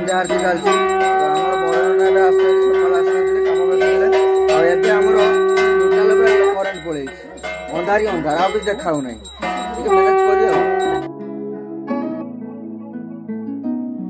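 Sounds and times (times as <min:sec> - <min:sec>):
bells ringing rhythmically: 0:00.0 - 0:11.1
long held tone: 0:00.0 - 0:11.1.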